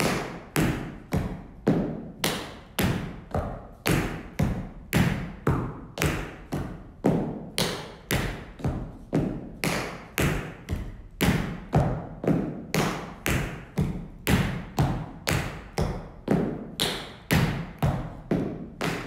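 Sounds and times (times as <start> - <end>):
tap shoes striking floor: 0.0 - 19.0.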